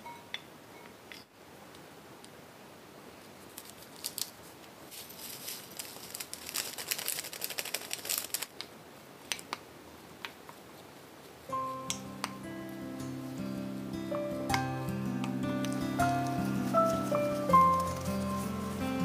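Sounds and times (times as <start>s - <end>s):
plastic packet rustling: 3.5s - 8.6s, 15.7s - 19.0s
wooden spoon clicking on glass bowl: 11.9s - 12.4s.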